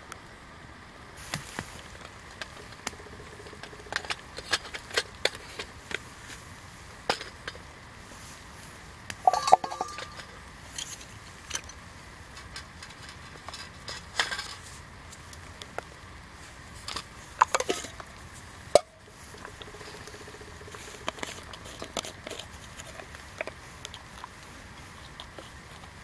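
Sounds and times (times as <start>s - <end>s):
faint steady hiss: 0.0s - 26.0s
metal mug lid clinking: 9.2s - 10.4s.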